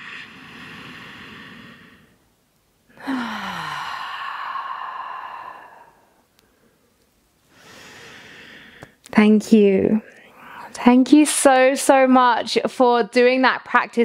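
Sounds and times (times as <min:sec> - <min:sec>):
person inhaling deeply: 0:00.0 - 0:02.2, 0:02.9 - 0:06.9, 0:07.5 - 0:09.0
person sighing exhale: 0:02.9 - 0:06.2.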